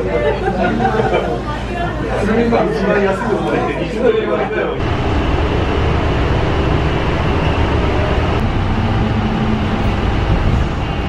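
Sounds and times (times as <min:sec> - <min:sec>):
bus engine and tyres rumbling: 0:04.8 - 0:11.0
faint engine hum: 0:04.8 - 0:11.0.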